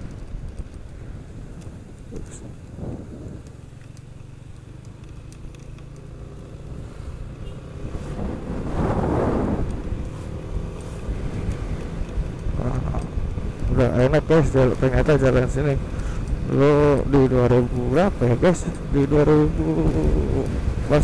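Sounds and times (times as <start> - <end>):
wind noise: 0.0 - 3.9, 6.8 - 21.0
scooter engine cruising: 0.0 - 21.0
loud rushing noise: 8.0 - 9.9.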